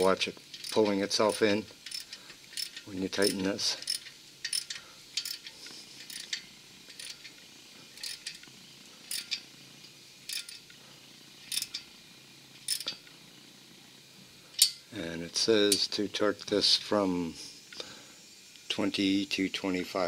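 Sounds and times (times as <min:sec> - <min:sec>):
socket ratchet clicking: 0:00.4 - 0:07.4, 0:08.0 - 0:08.5, 0:09.1 - 0:09.5, 0:10.2 - 0:10.7, 0:11.5 - 0:11.9, 0:12.7 - 0:13.1.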